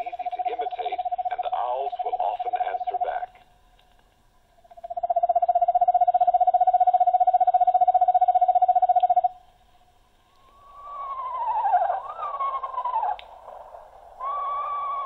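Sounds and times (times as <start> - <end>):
owl trill from small speaker: 10.4 - 13.3.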